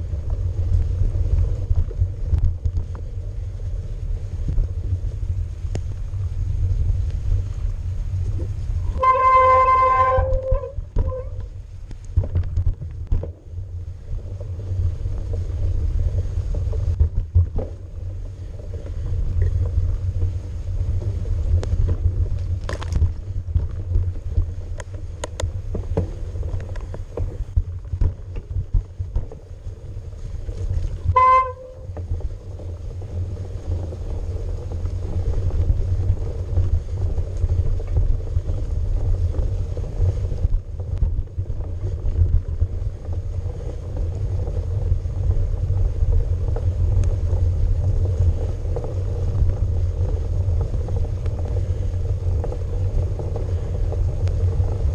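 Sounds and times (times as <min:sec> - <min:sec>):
bike riding low rumble: 0:00.0 - 0:54.9
brief horn-like tone: 0:08.9 - 0:11.4, 0:31.1 - 0:31.9.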